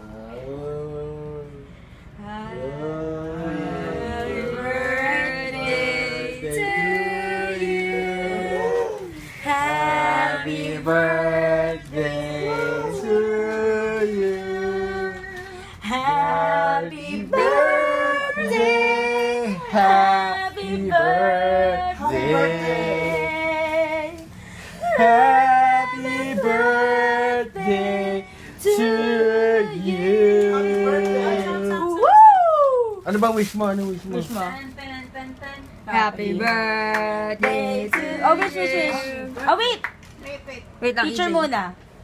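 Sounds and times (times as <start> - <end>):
group singing unaccompanied: 2.3 - 32.0, 36.0 - 39.4.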